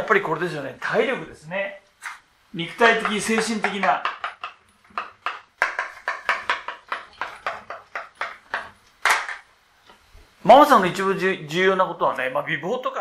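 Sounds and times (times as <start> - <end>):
chalk tapping and scraping: 2.0 - 8.8.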